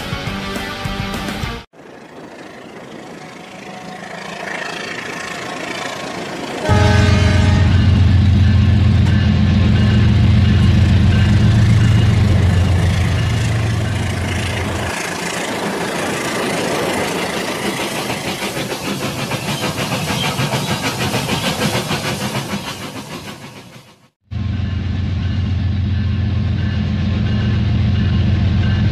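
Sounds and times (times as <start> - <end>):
train wheels clicking over track: 8.6 - 24.2.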